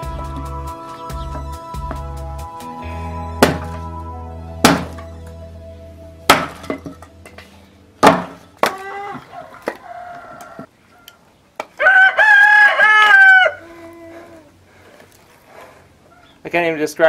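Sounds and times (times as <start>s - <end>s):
background music: 0.0s - 9.3s
axe splitting firewood: 3.4s - 3.9s, 4.6s - 5.1s, 6.3s - 9.8s
rooster crowing: 8.7s - 11.2s, 11.8s - 14.5s.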